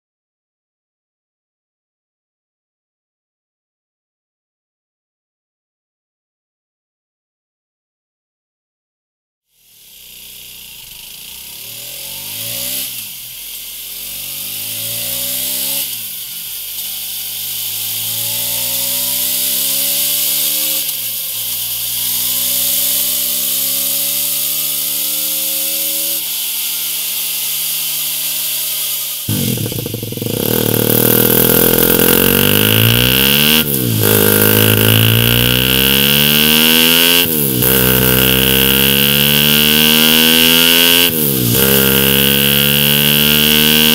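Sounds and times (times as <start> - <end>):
motorcycle engine revving through shifts: 9.6 - 43.9
steady high tone: 29.3 - 39.8.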